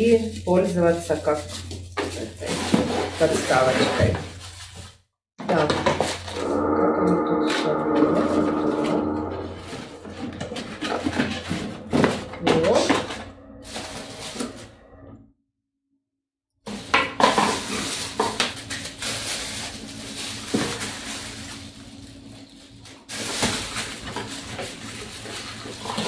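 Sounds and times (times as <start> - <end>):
plastic wrapping crinkling: 0.0 - 5.0, 16.7 - 26.0.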